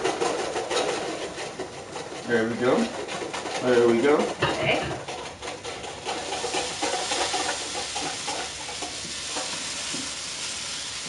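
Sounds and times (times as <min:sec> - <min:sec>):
stirring in a pan: 0:00.0 - 0:11.0
food sizzling: 0:05.3 - 0:11.0.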